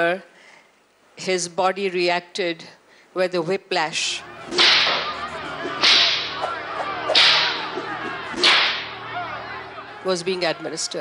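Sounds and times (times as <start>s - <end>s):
whip lashes: 4.5s - 5.1s, 5.8s - 6.5s, 7.1s - 7.7s, 8.4s - 8.8s.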